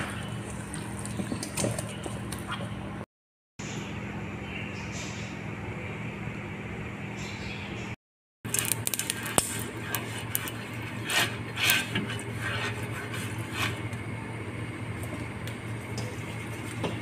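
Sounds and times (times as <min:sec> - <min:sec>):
steady low hum: 0:03.6 - 0:17.0.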